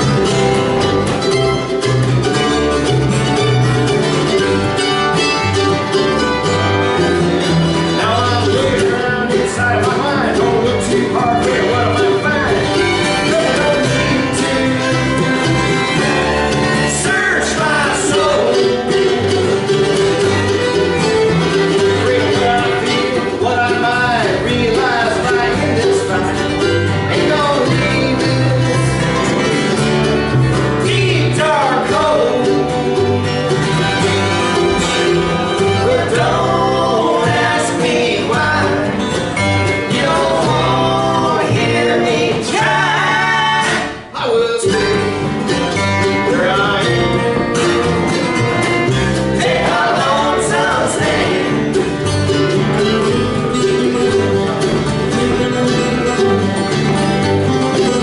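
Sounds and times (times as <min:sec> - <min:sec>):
fiddle: 0:00.0 - 0:43.5
acoustic guitar: 0:00.0 - 0:58.0
mandolin: 0:00.0 - 0:58.0
upright bass: 0:00.0 - 0:58.0.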